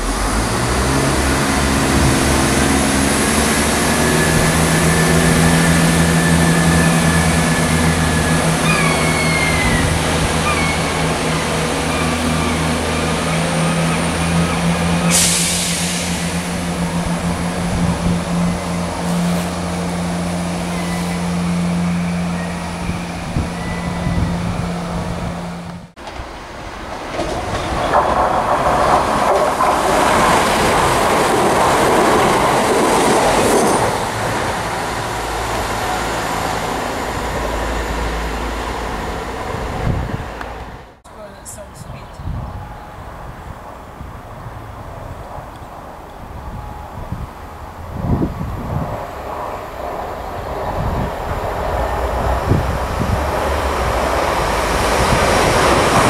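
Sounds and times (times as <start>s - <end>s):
diesel engines humming: 0.0s - 27.0s, 27.6s - 56.0s
train rolling past: 0.0s - 56.0s
train wheels squealing: 3.9s - 16.6s, 20.6s - 24.9s.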